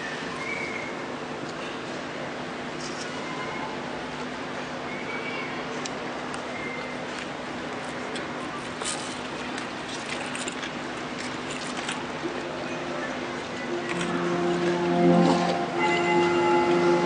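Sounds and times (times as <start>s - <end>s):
crowd hubbub: 0.0s - 17.0s
faint hum: 12.1s - 17.0s.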